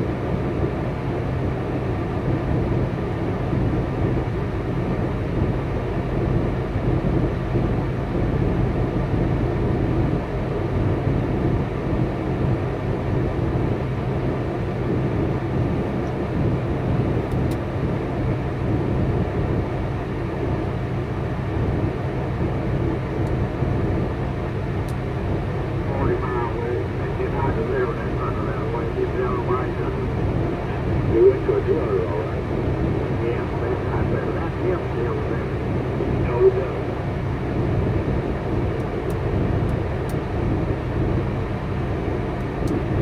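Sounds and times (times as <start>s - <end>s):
diesel truck engine idling: 18.3s - 43.0s.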